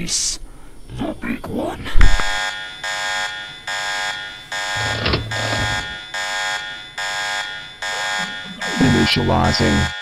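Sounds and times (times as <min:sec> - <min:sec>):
alarm blasts: 0:02.4 - 0:10.0.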